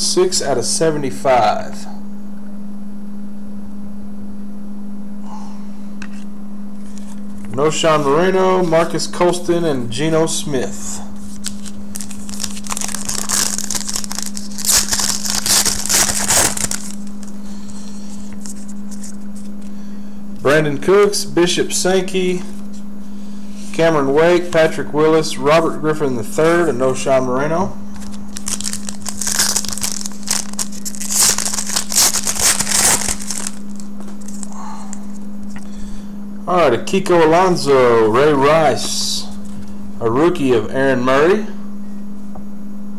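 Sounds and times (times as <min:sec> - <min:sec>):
foil wrapper crinkling: 0:11.2 - 0:17.4, 0:27.9 - 0:34.6.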